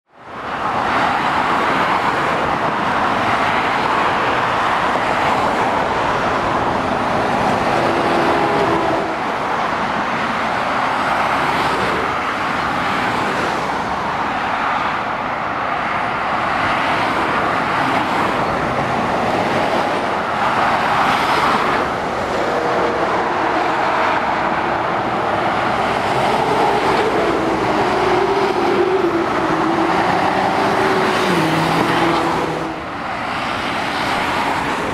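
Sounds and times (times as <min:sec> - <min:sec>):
heavy vehicle engine: 0:00.1 - 0:34.9
motorway traffic passing: 0:00.1 - 0:34.9.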